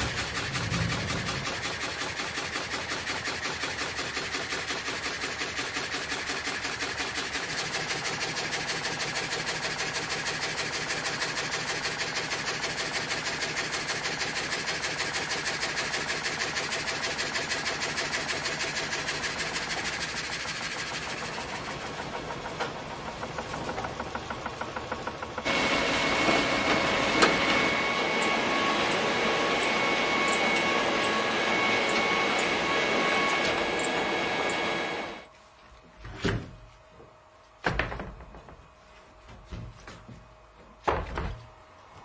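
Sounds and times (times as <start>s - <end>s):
frame saw sawing a log: 15.7s - 35.3s.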